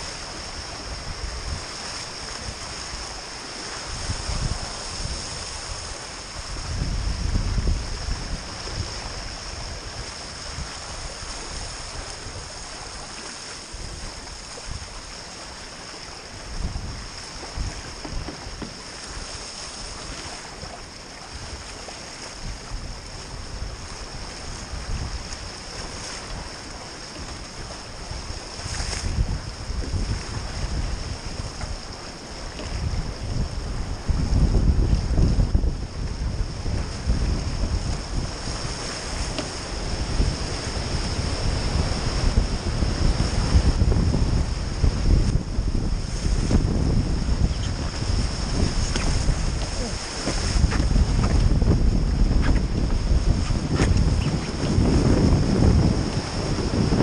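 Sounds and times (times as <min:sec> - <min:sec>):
water splashing past boat hulls: 0:00.0 - 0:57.0
wind rumbling on microphone: 0:00.0 - 0:57.0.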